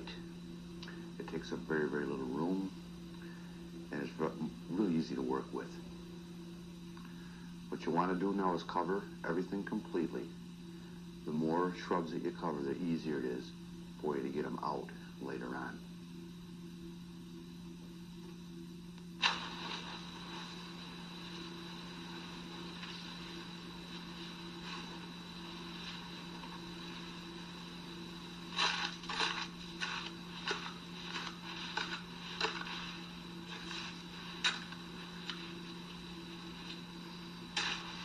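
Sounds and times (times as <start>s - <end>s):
steady low hum: 0.0s - 38.0s
crunching scrapes of snow and cloth: 19.2s - 27.7s, 28.5s - 35.8s
hiss: 19.2s - 38.0s.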